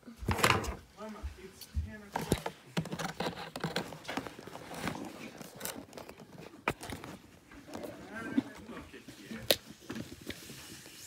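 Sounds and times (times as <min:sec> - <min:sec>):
cardboard box handled: 0:02.1 - 0:08.6.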